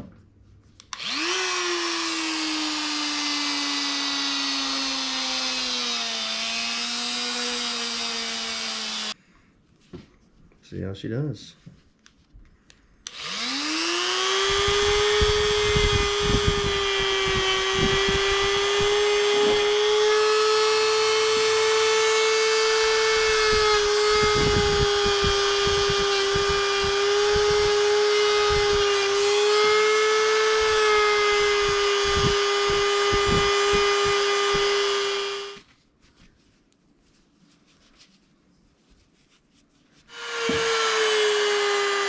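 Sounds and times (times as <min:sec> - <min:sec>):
rotary tool whining: 0:00.8 - 0:09.2, 0:13.0 - 0:35.7, 0:40.1 - 0:42.0
bit grinding on metal: 0:40.1 - 0:42.0.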